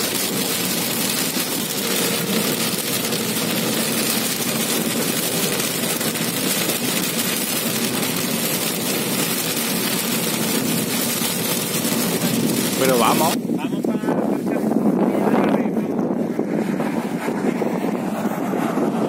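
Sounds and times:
car engine running: 0:00.0 - 0:13.4
heavy rain on car roof: 0:00.0 - 0:13.4
tyres hissing on wet road: 0:00.0 - 0:13.4.

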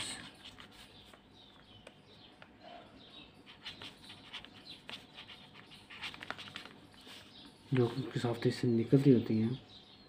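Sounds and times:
pen scratching on paper: 0:03.4 - 0:07.3.

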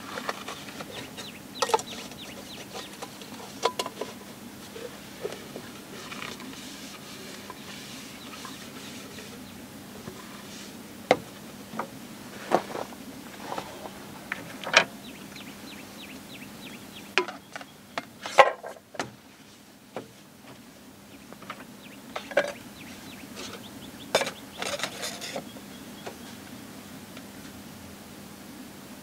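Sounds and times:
bird chirping: 0:00.7 - 0:03.5, 0:07.5 - 0:09.6, 0:13.4 - 0:18.2, 0:21.1 - 0:26.6.

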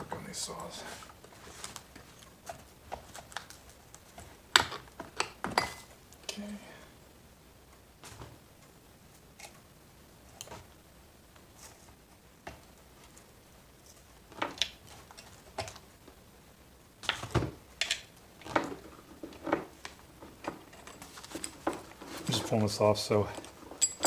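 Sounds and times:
saw chain clinking and rattling: 0:23.2 - 0:24.0.

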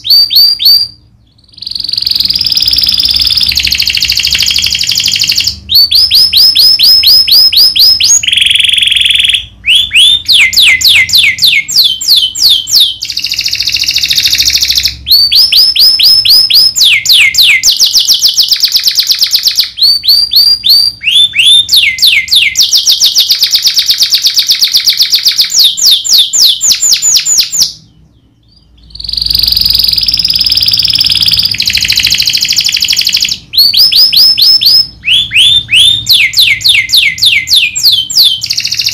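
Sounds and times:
canary singing: 0:00.0 - 0:38.9.

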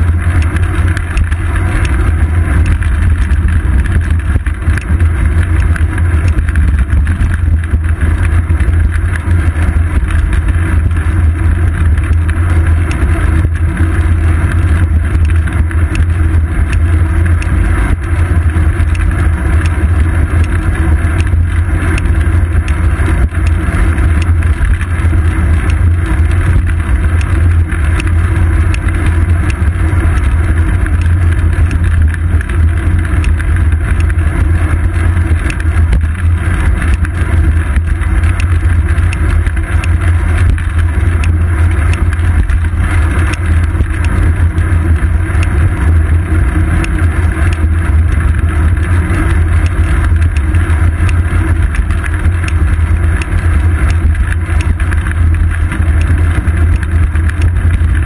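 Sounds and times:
faint ticks and rattles: 0:00.0 - 0:58.0
wind buffeting and road rumble: 0:00.0 - 0:58.0.

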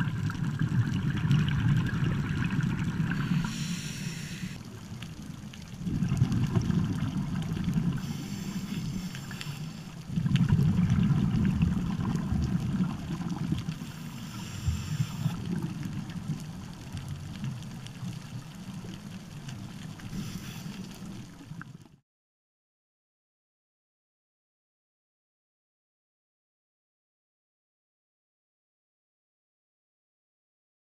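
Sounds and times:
exhaled bubbles rumbling underwater: 0:00.0 - 0:22.0
regulator hiss on inhale: 0:03.0 - 0:04.7, 0:07.9 - 0:10.1, 0:13.7 - 0:15.5, 0:20.0 - 0:21.4.

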